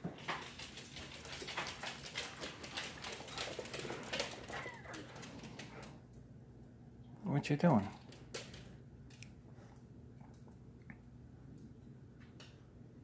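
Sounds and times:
small dog whimpering: 4.5 - 5.1.

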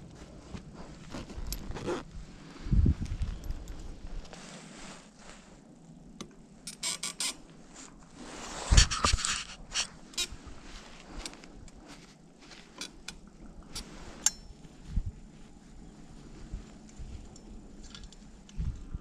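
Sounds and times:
clothing rustle: 0.0 - 6.0, 7.4 - 19.0
sharp metallic click with ring: 14.2 - 14.5.

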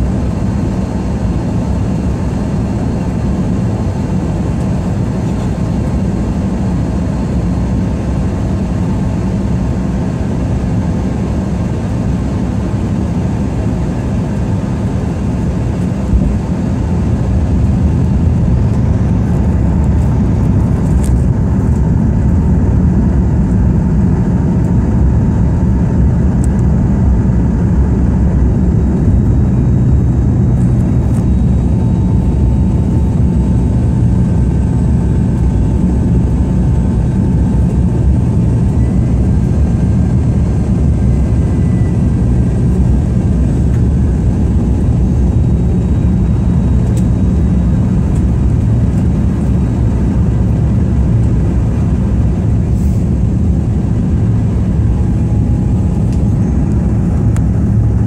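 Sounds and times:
airliner cabin roar: 0.0 - 58.0
faint whining tones: 28.0 - 58.0.

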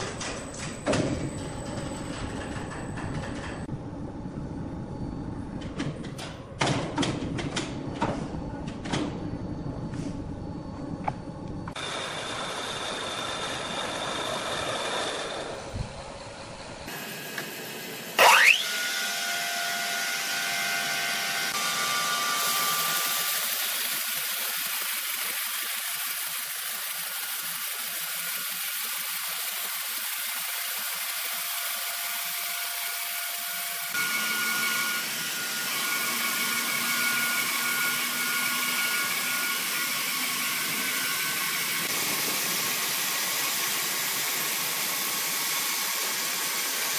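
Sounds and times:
thin motor whine: 9.2 - 46.9
saw blade hissing through wood: 16.9 - 18.7, 37.9 - 46.9
loud rising squeal: 18.2 - 18.8.

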